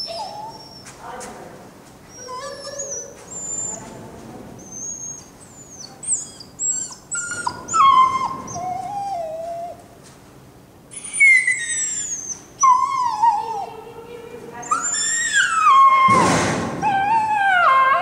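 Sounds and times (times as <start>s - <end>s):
dog whining and yelping: 0.0s - 1.0s, 2.1s - 4.0s, 4.6s - 9.9s, 10.9s - 13.7s, 14.6s - 18.0s.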